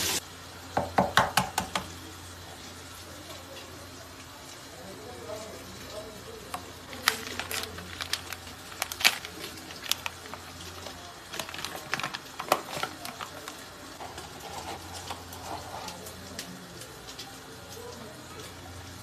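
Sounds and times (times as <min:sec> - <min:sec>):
paper bag crackling: 0:06.6 - 0:16.6.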